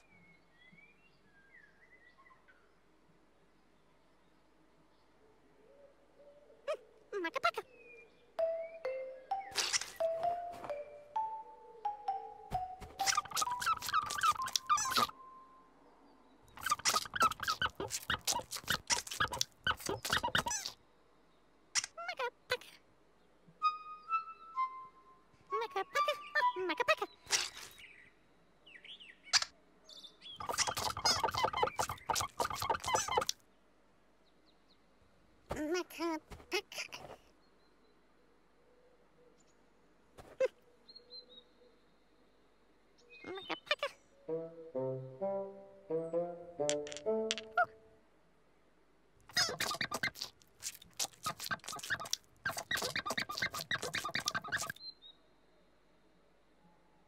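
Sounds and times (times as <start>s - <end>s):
high chirping babbling voice: 6.6s - 7.7s, 12.9s - 15.3s, 16.5s - 20.8s, 21.9s - 22.9s, 25.4s - 27.8s, 30.4s - 33.4s, 35.5s - 37.2s, 43.2s - 44.6s, 49.3s - 54.8s
sponge squishy squeaks: 9.5s - 10.0s, 12.9s - 15.1s, 16.6s - 20.8s, 27.3s - 27.8s, 30.4s - 33.4s, 49.3s - 54.8s.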